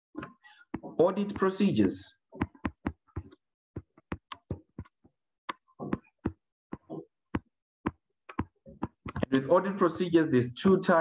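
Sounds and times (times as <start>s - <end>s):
stylus tapping on tablet screen: 0.2s - 1.7s, 2.3s - 9.3s.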